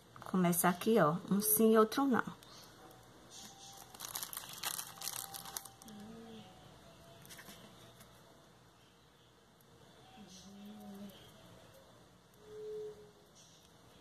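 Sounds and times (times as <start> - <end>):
crinkling of handled mesh strip: 3.6 - 6.1.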